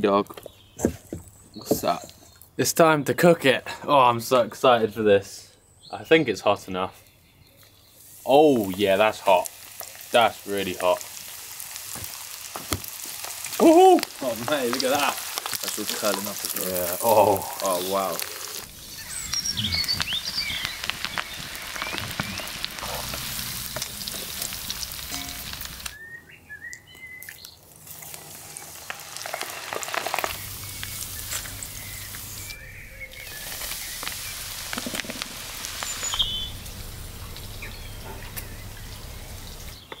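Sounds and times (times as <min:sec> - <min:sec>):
birds chirping: 0:00.0 - 0:11.0, 0:13.2 - 0:40.0
deep-frying sizzle: 0:08.0 - 0:26.0, 0:27.7 - 0:39.8.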